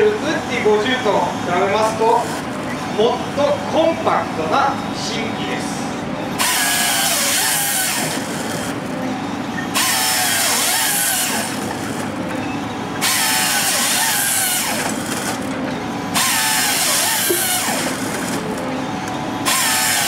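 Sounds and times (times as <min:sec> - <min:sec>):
engine and hydraulics droning: 0:00.0 - 0:20.0
chainsaw cutting log: 0:06.4 - 0:08.7, 0:09.8 - 0:12.1, 0:13.0 - 0:15.4, 0:16.2 - 0:18.4, 0:19.4 - 0:20.0.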